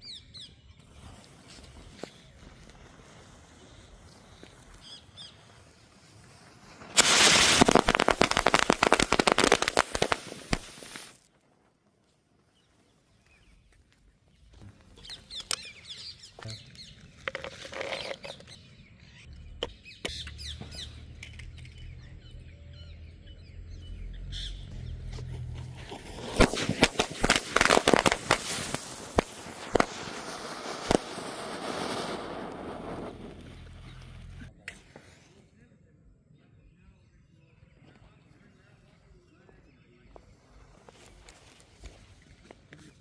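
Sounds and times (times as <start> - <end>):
firecrackers cracking: 0.8 - 11.7, 14.9 - 18.6, 25.2 - 35.0
birds chirping faintly: 12.1 - 26.3.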